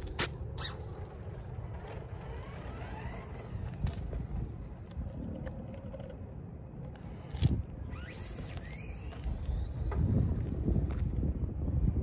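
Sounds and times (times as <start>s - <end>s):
radio-controlled car motor whine: 0.6s - 4.5s, 7.0s - 11.1s.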